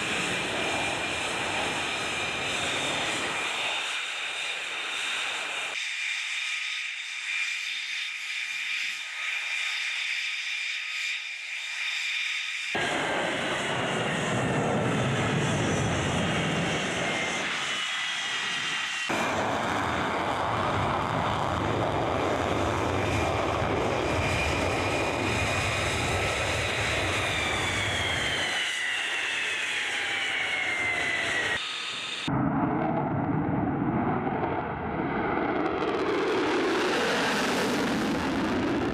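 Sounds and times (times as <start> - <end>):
fighter jet taking off: 0.0 - 38.9.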